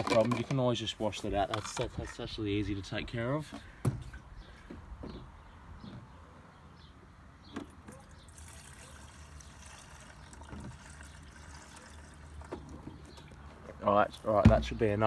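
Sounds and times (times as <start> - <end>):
fuel trickling into a tank: 8.0 - 13.4.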